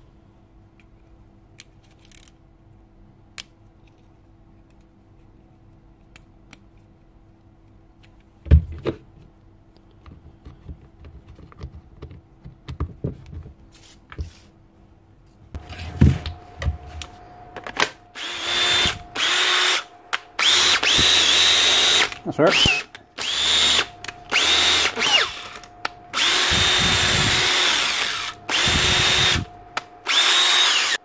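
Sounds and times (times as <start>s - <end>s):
plastic parts clicking and knocking: 9.9s - 13.6s
drill motor whining: 18.0s - 31.0s.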